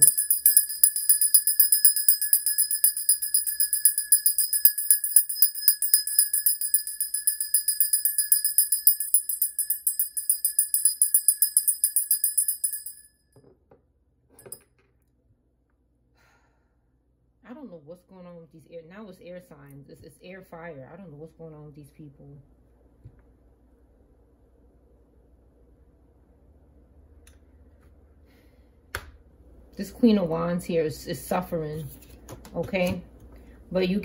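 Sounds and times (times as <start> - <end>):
brass hand bell ringing: 0.0 - 13.1.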